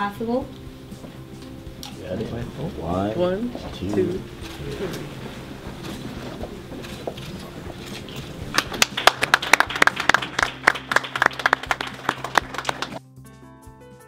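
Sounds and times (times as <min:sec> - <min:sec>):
murmured voices: 0:01.9 - 0:08.9
audience applauding: 0:07.2 - 0:13.0.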